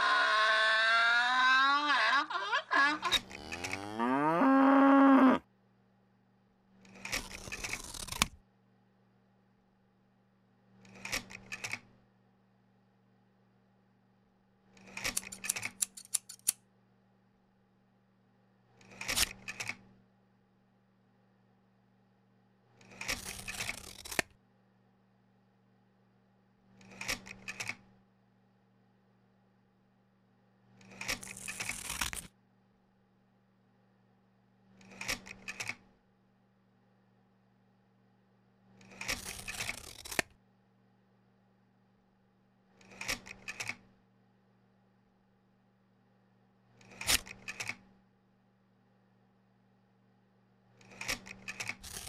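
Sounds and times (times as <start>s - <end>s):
cow mooing: 0.0s - 5.4s.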